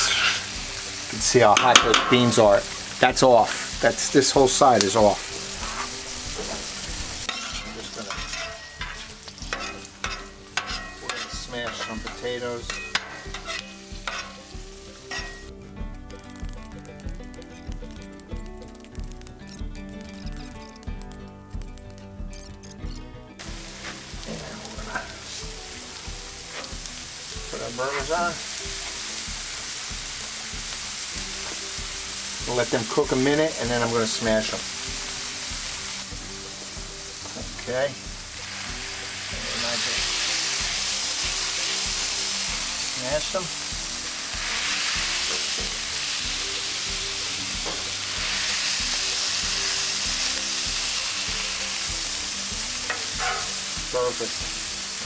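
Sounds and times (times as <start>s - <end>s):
spatula scraping on griddle: 0.0s - 0.6s, 5.5s - 15.5s, 26.4s - 26.9s, 44.2s - 45.8s, 52.9s - 53.7s
food sizzling on griddle: 0.0s - 55.0s.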